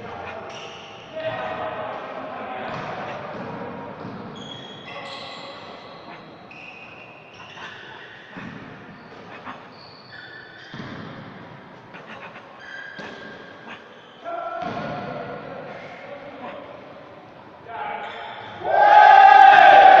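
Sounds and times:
shoes squeaking on hall floor: 0.0 - 1.7, 2.6 - 15.1, 18.0 - 18.7.

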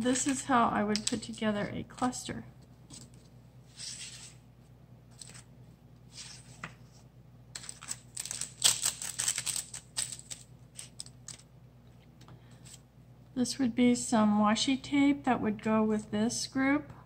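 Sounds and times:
paper rustling and crinkling: 5.1 - 5.5, 6.1 - 7.0, 7.6 - 11.4.

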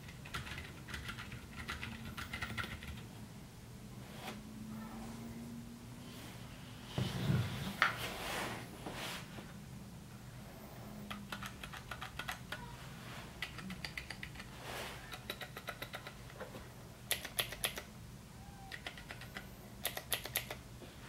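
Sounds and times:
typing on mechanical keyboard: 0.0 - 3.0, 11.1 - 12.6, 13.4 - 14.5, 15.1 - 16.4, 17.1 - 17.9, 18.7 - 20.6.

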